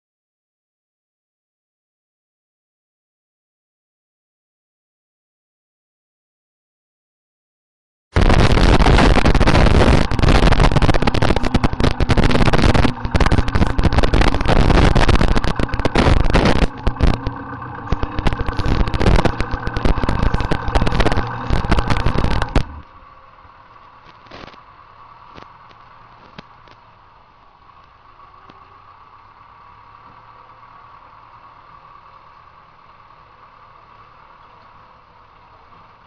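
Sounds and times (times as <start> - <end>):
tractor engine running: 8.2 - 36.0.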